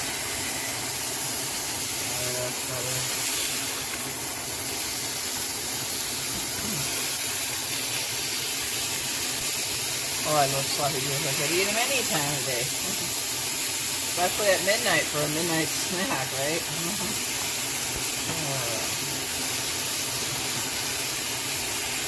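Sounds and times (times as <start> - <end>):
meat sizzling in a frying pan: 0.0 - 22.0.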